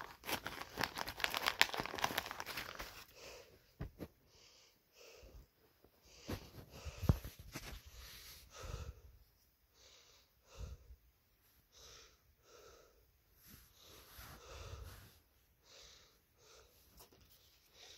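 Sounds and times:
faint breathing: 0:03.0 - 0:17.0.

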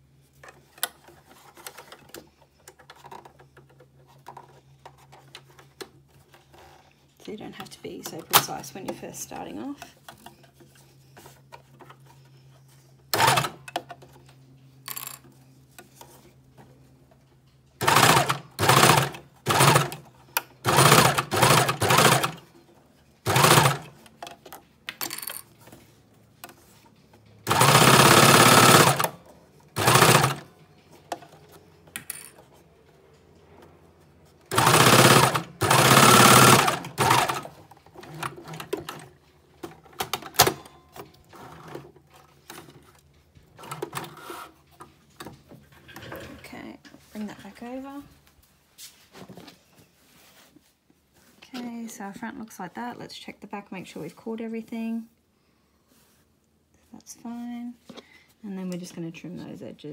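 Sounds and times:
sewing machine stitching: 0:13.1 - 0:13.6, 0:17.8 - 0:20.0, 0:20.6 - 0:22.4, 0:23.2 - 0:24.0, 0:27.4 - 0:29.2, 0:29.8 - 0:30.5, 0:34.5 - 0:39.1.

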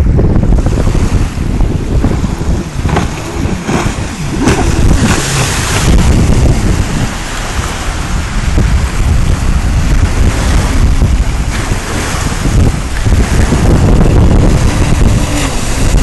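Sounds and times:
jet ski engine revving: 0:00.0 - 0:16.0
wind rumble on microphone: 0:00.0 - 0:16.0.

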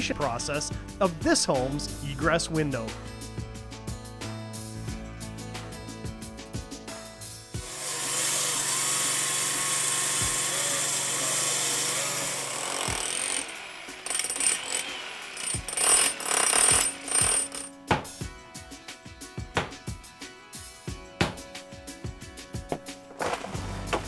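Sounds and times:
hammer drill boring into block: 0:07.6 - 0:17.7
saw cutting concrete: 0:07.6 - 0:17.7.

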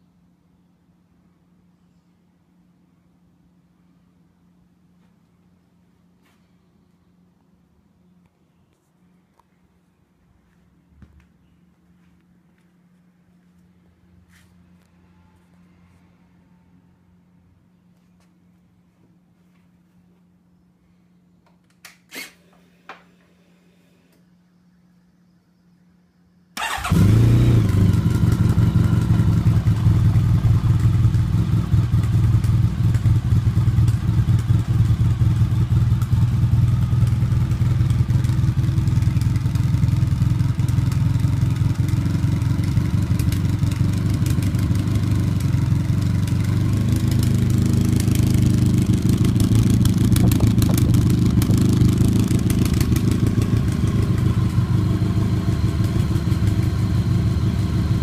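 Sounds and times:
motorcycle engine starting and idling: 0:26.6 - 0:58.0.

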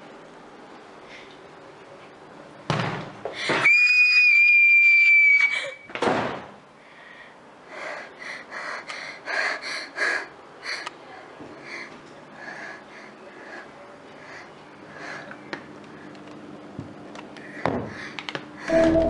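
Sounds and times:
girl screaming: 0:03.5 - 0:05.9
heavy panting breaths: 0:06.8 - 0:15.4, 0:17.4 - 0:18.7.

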